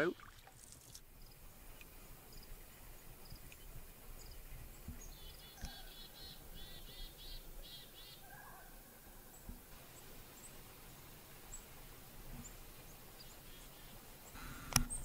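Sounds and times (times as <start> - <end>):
faint bird chirping: 0.0 - 10.6.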